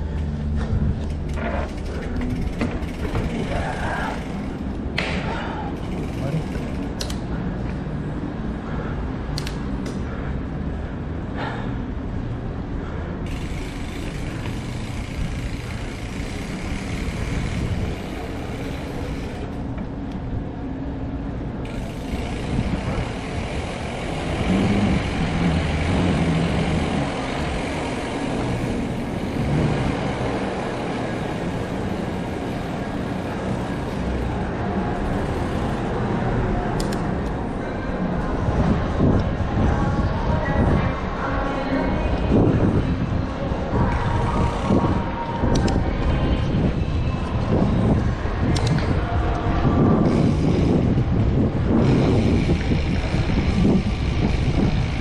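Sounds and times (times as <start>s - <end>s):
bike tyres rolling on concrete: 0.0s - 8.0s, 13.2s - 20.4s, 21.4s - 37.4s, 42.4s - 55.0s
wind rumble on microphone: 0.0s - 9.3s, 10.0s - 55.0s.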